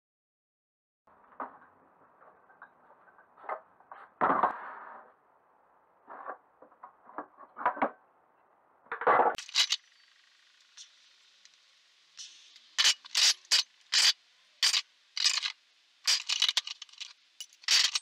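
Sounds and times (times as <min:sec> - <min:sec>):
metal tools clinking and rattling: 0:09.4 - 0:09.8, 0:12.2 - 0:18.0.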